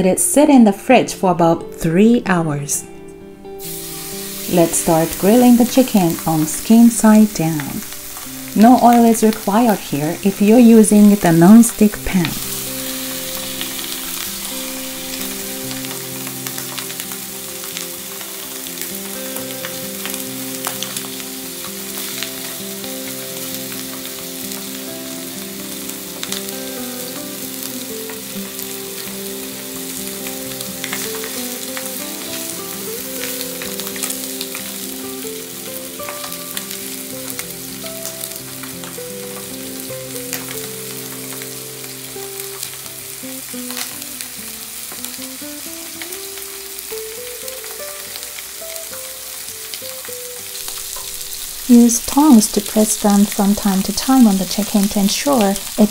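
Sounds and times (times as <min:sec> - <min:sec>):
chicken sizzling in frying pan: 0:03.5 - 0:55.9
spitting fat crackles: 0:03.6 - 0:35.2, 0:49.8 - 0:55.9.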